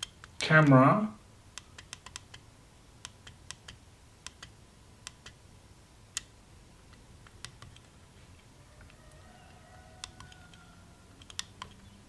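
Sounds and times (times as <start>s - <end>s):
push-buttons clicking: 11.2s - 11.8s.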